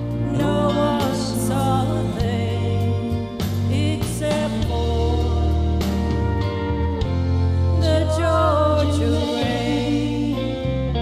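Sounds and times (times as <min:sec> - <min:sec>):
karaoke backing track: 0:00.0 - 0:11.0
woman singing country song: 0:00.2 - 0:06.8, 0:07.7 - 0:11.0.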